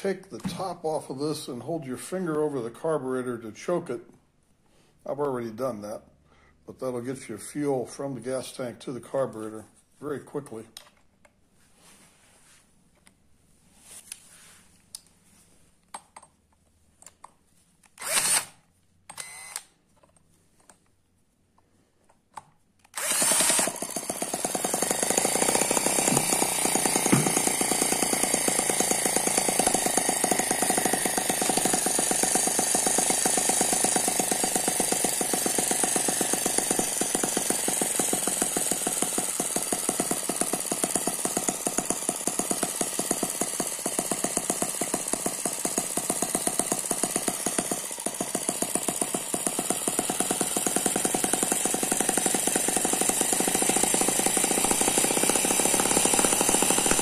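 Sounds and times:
small engine running fast: 23.0s - 57.0s.

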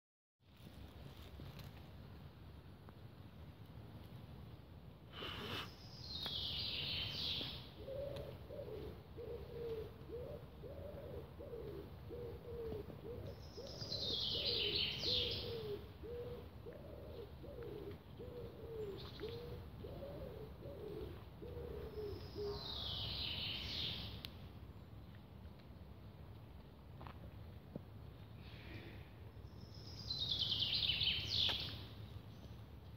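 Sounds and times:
low cooing call: 7.8s - 23.1s.

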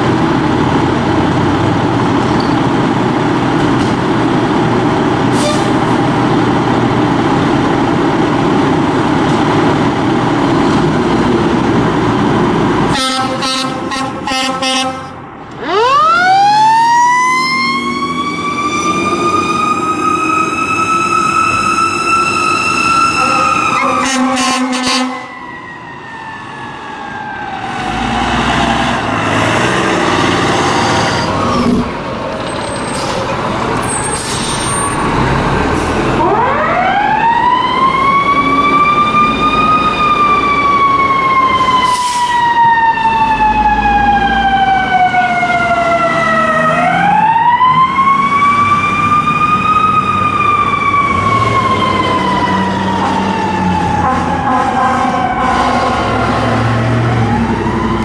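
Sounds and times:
diesel engines running: 0.0s - 58.0s
air horn blasts: 12.9s - 15.2s, 23.1s - 25.3s, 54.0s - 56.2s
second siren wailing: 15.6s - 29.1s, 36.1s - 58.0s
siren wailing: 15.6s - 31.5s, 36.1s - 58.0s.

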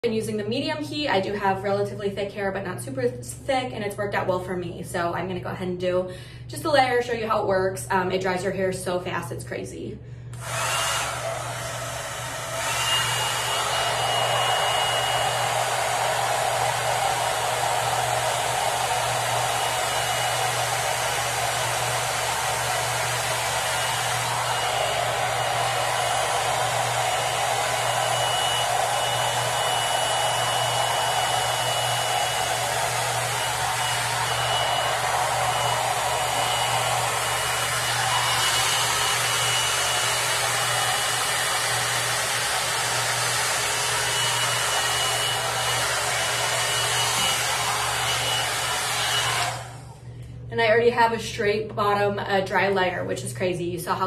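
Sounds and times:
hot air brush blowing: 10.3s - 49.9s.

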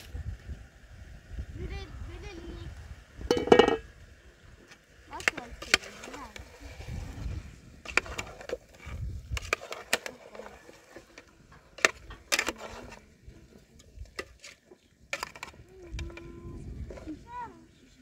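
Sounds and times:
cookware knocking and clinking: 3.3s - 3.8s.

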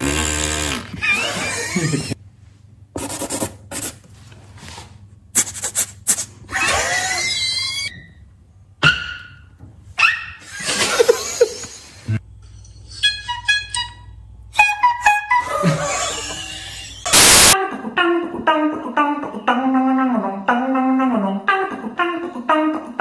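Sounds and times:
beatbox hissy bursts: 5.4s - 6.4s, 15.9s - 17.6s
squeaky gliding whistles: 12.5s - 17.1s.

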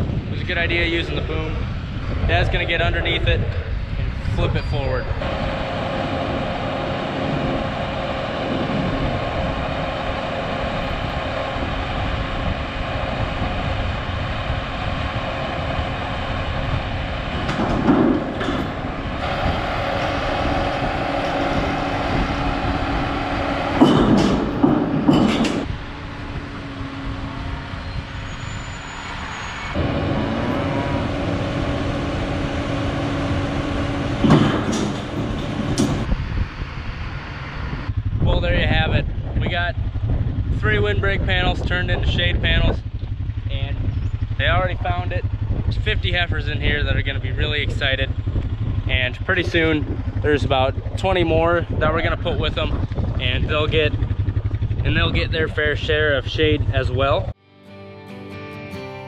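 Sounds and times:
tractor diesel engine running: 0.0s - 57.4s
metal panel bangs: 17.3s - 25.7s, 33.2s - 36.1s.

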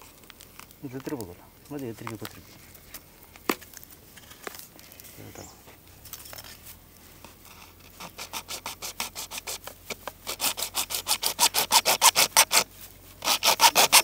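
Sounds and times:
hand tool scraping: 2.2s - 14.0s.

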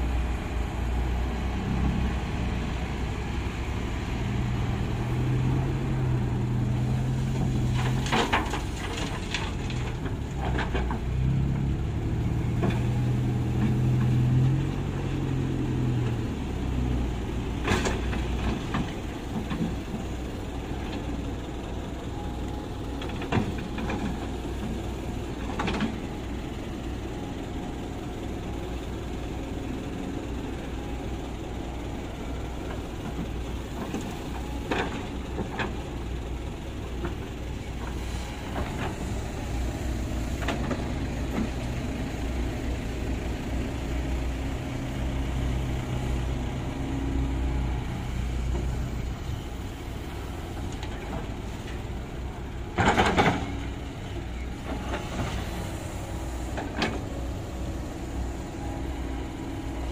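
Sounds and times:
excavator diesel engine under load: 0.0s - 59.9s.

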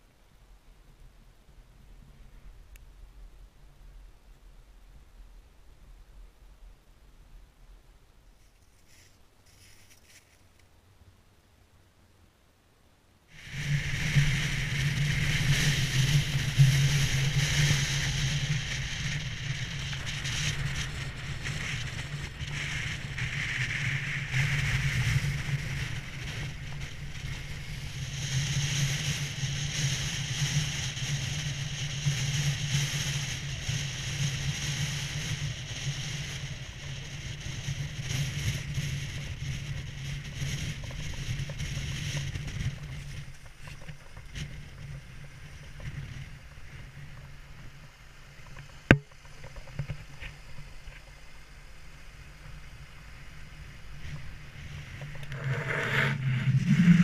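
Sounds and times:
car engine and road drone: 13.3s - 57.0s
hissing wind rush: 13.3s - 57.0s.

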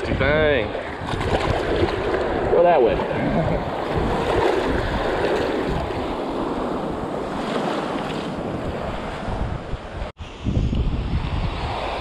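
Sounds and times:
wind noise on microphone: 0.0s - 12.0s
small waves breaking: 0.7s - 10.1s.

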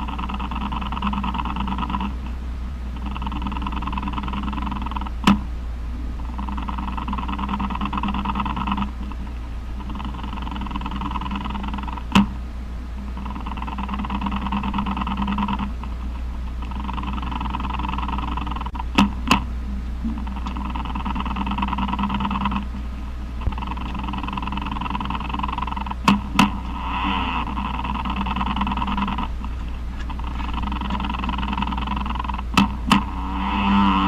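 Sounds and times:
spider vibration buzzing rasp: 0.0s - 5.5s, 6.2s - 34.0s
steady low hum: 0.0s - 34.0s
sharp clicks: 16.6s - 22.8s, 23.4s - 26.6s.

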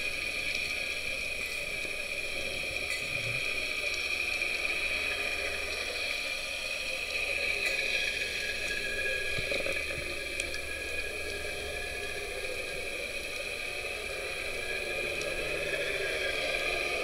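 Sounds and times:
low underwater hum: 0.0s - 17.0s
faint clicks: 9.3s - 10.6s.

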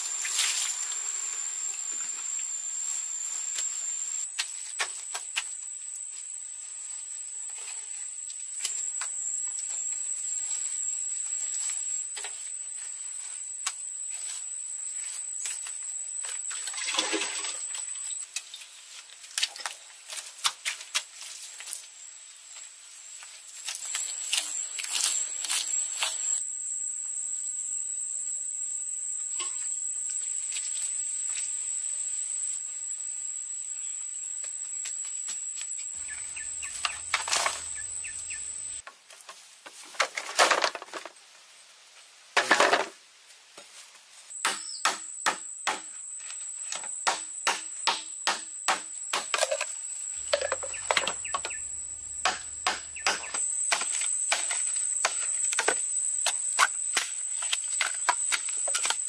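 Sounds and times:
high-pitched insect drone: 0.0s - 18.3s, 23.8s - 38.8s, 49.3s - 59.0s
sharp knocks: 50.2s - 53.4s.

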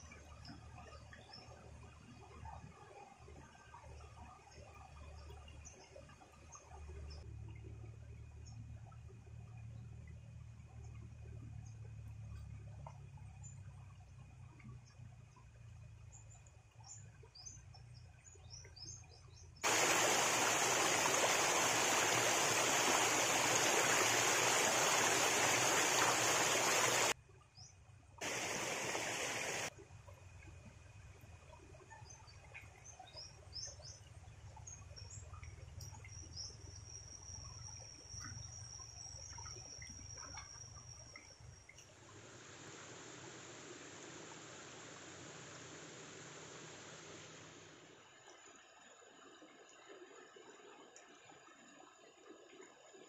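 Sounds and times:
quiet shallow stream: 0.0s - 53.0s
birds chirping: 19.6s - 27.1s, 28.2s - 29.7s
leaves swished through stream water: 19.6s - 27.2s, 28.2s - 29.7s.

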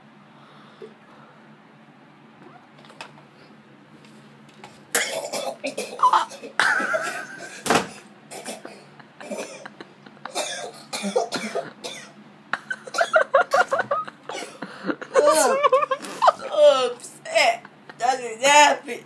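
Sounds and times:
man coughing hard: 4.9s - 7.7s, 8.3s - 14.6s.

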